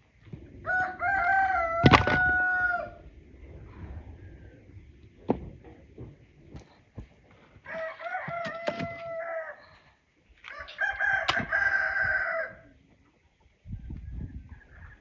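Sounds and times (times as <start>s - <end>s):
rooster crowing: 0.6s - 3.0s, 7.6s - 9.8s, 10.4s - 12.7s.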